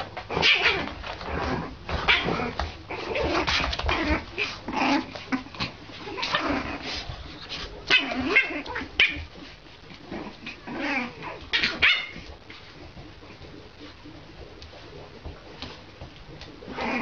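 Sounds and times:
dogs yipping and barking: 10.5s - 12.3s.

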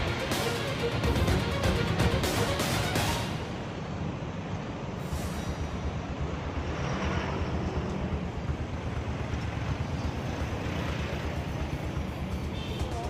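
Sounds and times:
highway traffic rumble: 0.0s - 13.0s.

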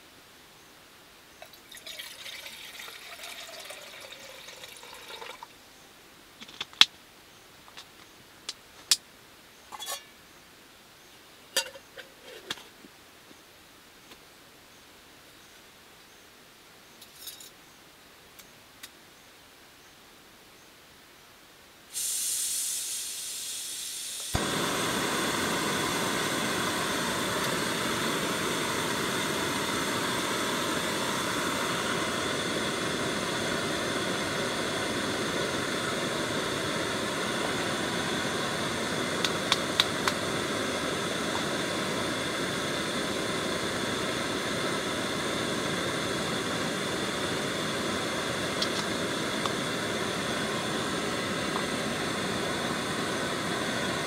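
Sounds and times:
gas hissing from valve: 21.9s - 54.0s
burner igniting click: 22.0s - 54.0s
stove burner rushing: 22.0s - 54.0s.

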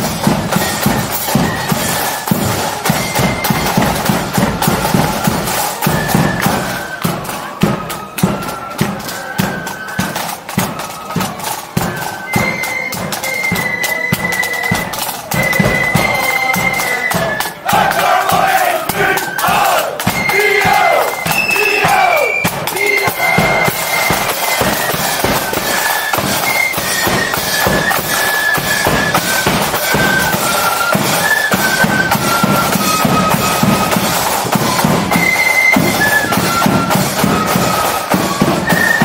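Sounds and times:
steady drumming: 0.0s - 39.0s
high held melody: 14.1s - 38.8s.

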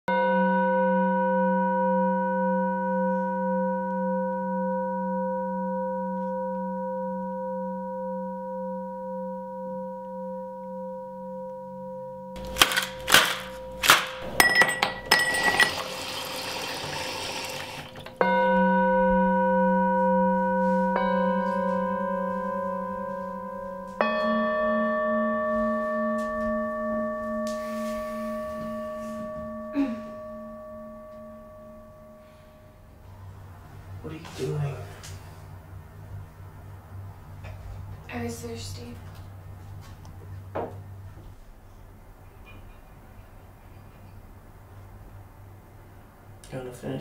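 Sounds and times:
ringing bell-like tone: 0.1s - 12.4s, 13.6s - 16.3s, 18.0s - 33.0s.

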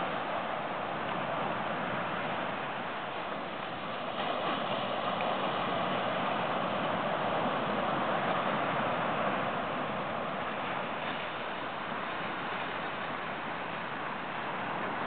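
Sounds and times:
ocean surf on beach: 0.0s - 15.0s.

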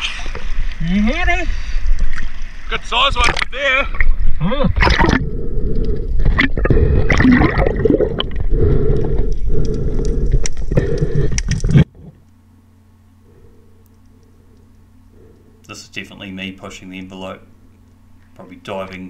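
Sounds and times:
underwater churning and bubbling: 1.6s - 12.2s.

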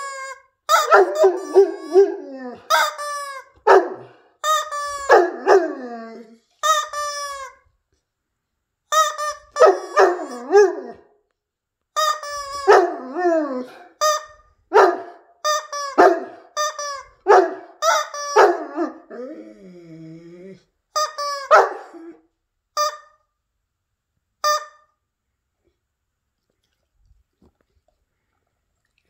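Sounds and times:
dog howling barks: 0.7s - 2.9s, 3.6s - 4.2s, 4.9s - 6.3s, 9.5s - 11.1s, 12.6s - 14.0s, 14.7s - 15.2s, 16.0s - 16.5s, 17.2s - 19.4s, 21.5s - 22.2s
rubber chicken toy squawking: 2.7s - 3.5s, 6.6s - 7.6s, 8.9s - 10.4s.

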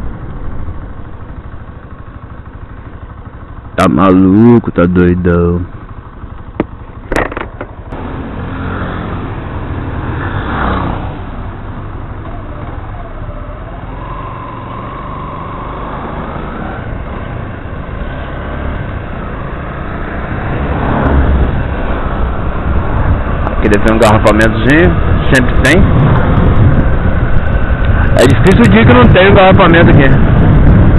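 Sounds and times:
motorcycle engine rumble: 0.0s - 30.9s
wind noise: 18.8s - 30.9s.

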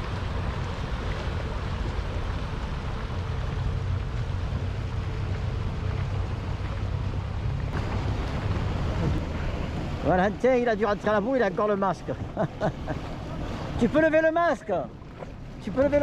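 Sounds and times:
outboard motor running: 0.0s - 16.0s
water rushing past: 0.0s - 16.0s.

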